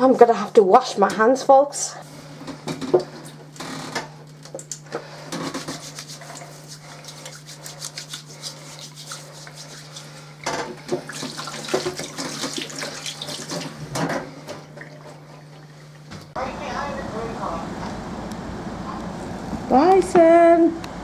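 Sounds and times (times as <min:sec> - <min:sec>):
steady low hum: 0:00.0 - 0:21.0
hands rubbing: 0:05.4 - 0:10.4
water splashing from a tap: 0:05.4 - 0:15.8.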